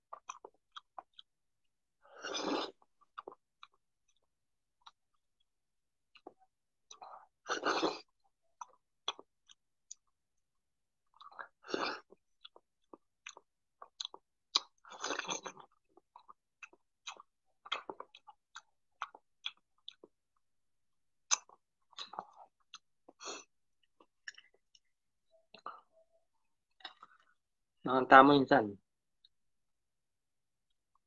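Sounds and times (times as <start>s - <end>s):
wet chewing: 11.1s - 20.2s.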